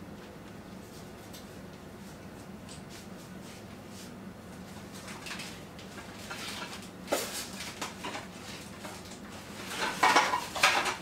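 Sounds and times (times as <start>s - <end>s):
clattering and rustling: 5.0s - 11.0s.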